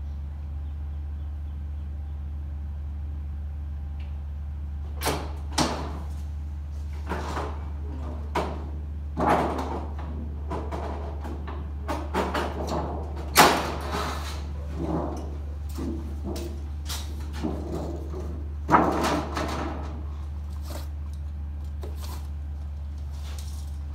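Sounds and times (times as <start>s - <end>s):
steady low hum: 0.0s - 23.9s
sheet metal clanks and scrapes: 9.2s - 20.9s.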